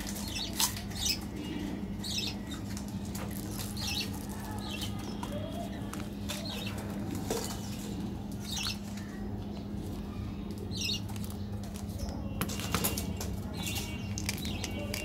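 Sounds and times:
birds chirping: 0.0s - 15.0s
plastic wrapper rustling: 2.6s - 6.4s.

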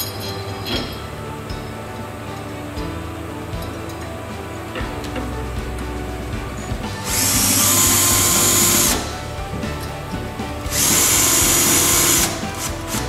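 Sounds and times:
background music: 0.0s - 13.0s
cordless drill driving screws: 7.0s - 9.2s, 10.7s - 13.0s.

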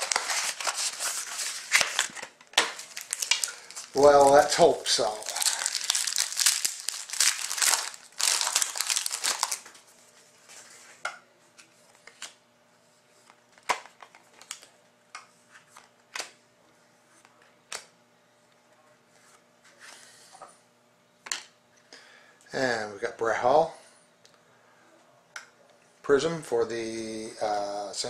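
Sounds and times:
card pack wrapper crinkling: 0.0s - 9.8s.

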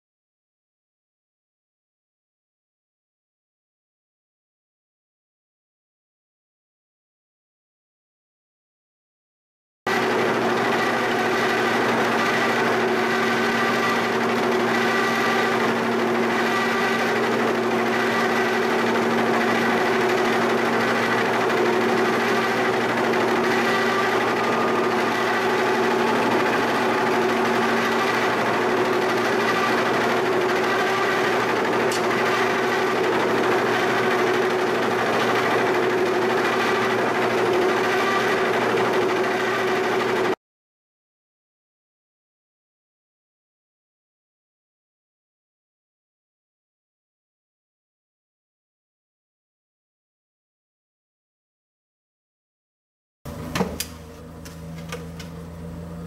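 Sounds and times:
boring mill machining hum: 9.9s - 40.4s, 53.3s - 56.0s.

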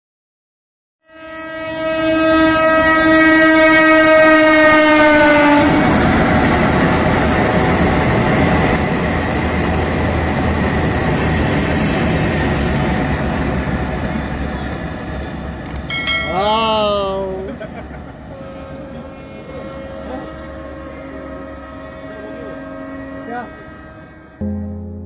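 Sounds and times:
locomotive horn blast: 1.0s - 6.0s, 18.3s - 24.8s
train coaches rushing and rumbling: 2.4s - 24.0s.

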